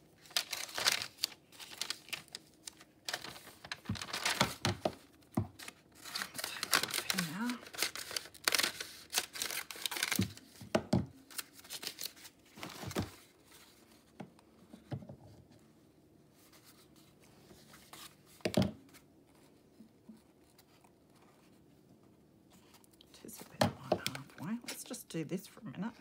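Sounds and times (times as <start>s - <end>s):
paper roll rustling and crackling: 0.0s - 14.9s.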